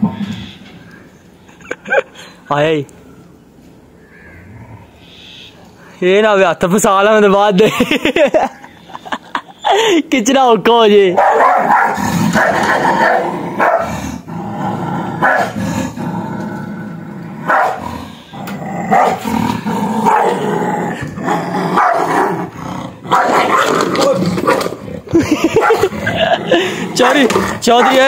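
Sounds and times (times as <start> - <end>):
dog barking: 11.2 - 13.9, 15.2 - 15.6, 17.5 - 17.8, 18.9 - 19.2, 20.1 - 20.4, 21.8 - 22.1, 23.1 - 23.8, 25.6 - 25.9, 27.0 - 28.0
dog growling: 11.4 - 28.0.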